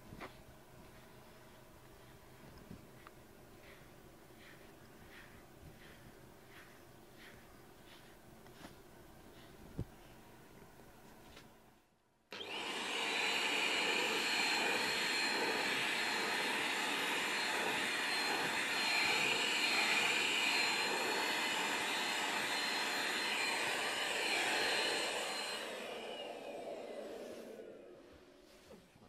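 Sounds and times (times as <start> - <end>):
vacuum cleaner whining: 12.3 - 29.0.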